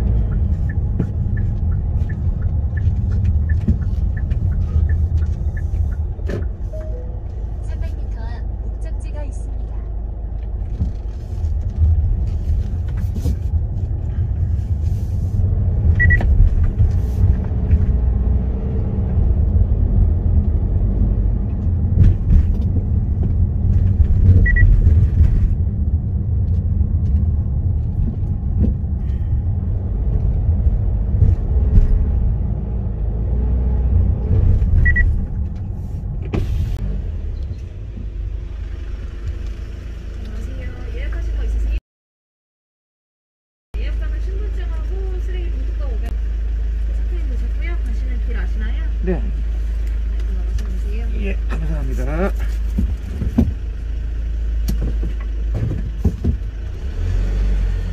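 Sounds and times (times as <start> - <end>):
car engine and tyre rumble: 0.0 - 41.8, 43.8 - 57.9
short high beeps: 6.7 - 7.2.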